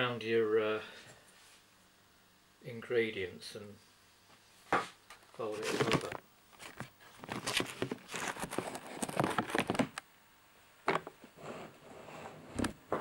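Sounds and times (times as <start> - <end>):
camcorder handling rustles and knocks: 5.6 - 10.0.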